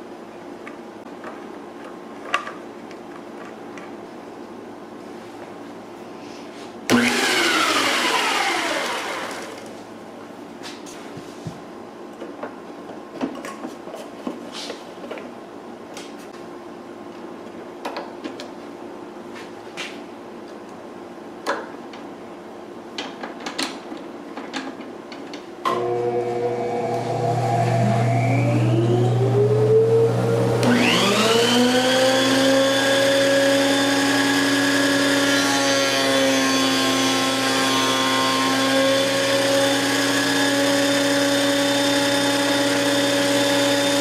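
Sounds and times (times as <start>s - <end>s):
electric motor whine spinning down: 6.9s - 9.7s, 25.7s - 44.0s.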